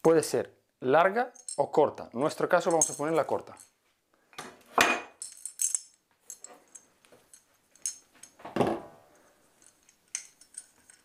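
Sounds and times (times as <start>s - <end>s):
metal fan parts clinking: 2.6s - 3.7s, 5.2s - 8.4s, 9.5s - 11.0s.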